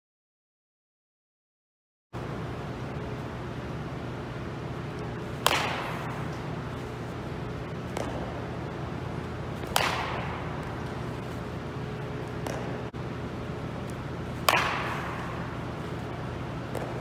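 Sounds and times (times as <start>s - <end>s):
baseball bat cracking ball: 5.0s - 13.0s, 13.6s - 17.0s.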